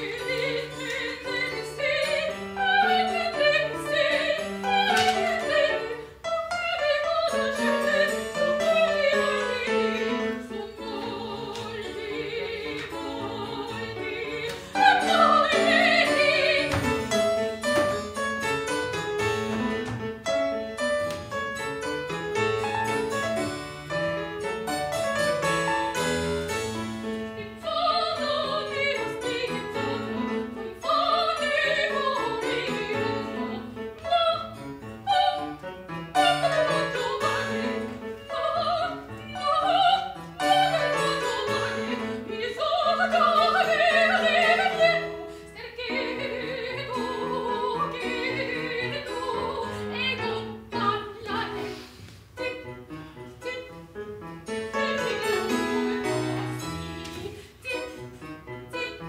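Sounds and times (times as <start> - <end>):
soprano singing an aria: 0.0 - 17.0, 27.3 - 35.6, 36.2 - 51.7, 52.4 - 52.8, 53.4 - 53.9, 54.5 - 59.0
keyboard accompaniment: 0.0 - 59.0.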